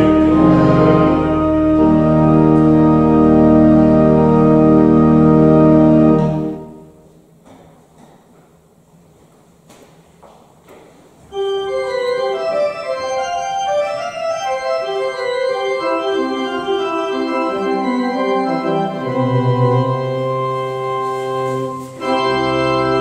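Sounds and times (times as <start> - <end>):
deep bass organ note: 0.0 - 6.8
church organ chords: 0.0 - 7.1, 11.3 - 23.0.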